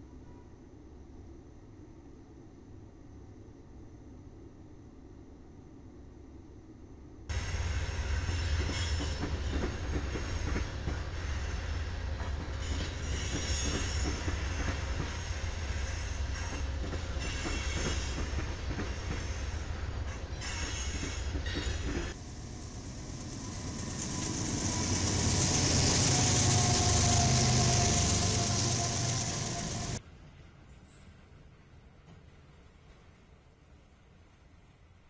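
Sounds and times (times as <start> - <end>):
strong hiss: 7.3 - 12.2, 22.1 - 30.0
diesel freight train: 7.3 - 34.8
passenger train rumbling: 7.3 - 35.0.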